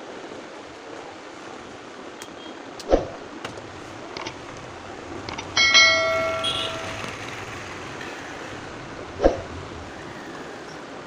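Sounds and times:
bell-like chime: 0:05.6 - 0:07.2.

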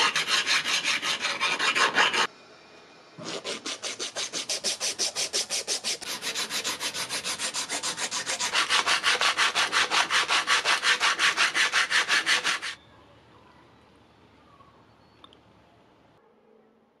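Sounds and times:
hand sanding metal: 0:00.0 - 0:02.3, 0:03.2 - 0:12.8.

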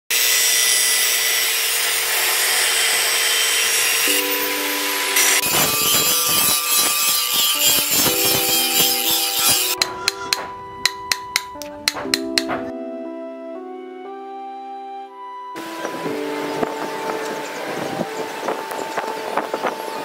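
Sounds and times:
angle grinder grinding steel: 0:00.1 - 0:12.4.

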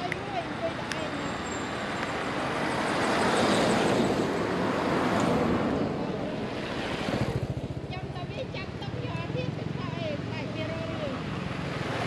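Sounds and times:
car passing by: 0:01.3 - 0:07.6.

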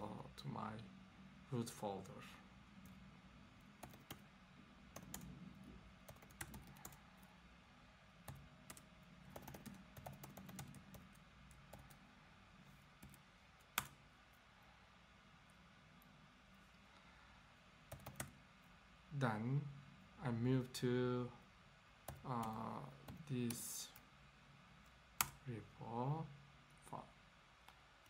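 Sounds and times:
faint keyboard typing: 0:03.6 - 0:04.3, 0:04.9 - 0:07.4, 0:08.2 - 0:14.4, 0:17.8 - 0:18.7, 0:22.0 - 0:24.1, 0:24.8 - 0:25.4.

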